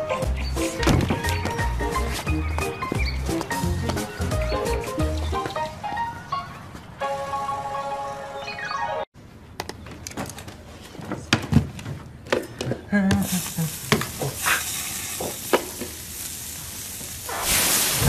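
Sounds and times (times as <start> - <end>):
sizzling crackling hiss: 13.2 - 18.0.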